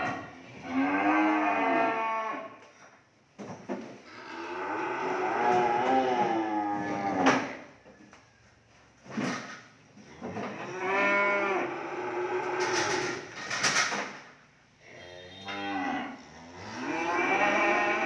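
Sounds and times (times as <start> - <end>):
cattle mooing: 0.6 - 2.6, 4.1 - 7.5, 10.5 - 13.3, 14.8 - 18.0.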